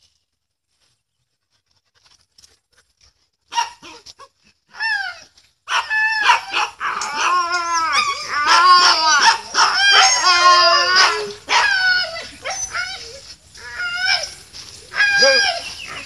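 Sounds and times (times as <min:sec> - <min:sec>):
husky yipping and whining: 0:04.8 - 0:16.0.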